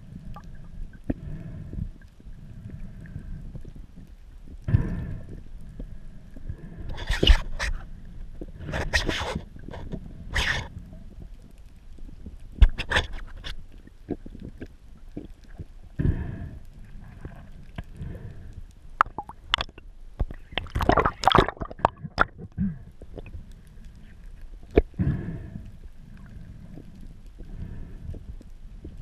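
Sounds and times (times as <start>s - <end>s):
underwater clicks and knocks: 12.5s - 15.7s, 19.0s - 23.3s
underwater rushing swishes: 20.4s - 22.5s.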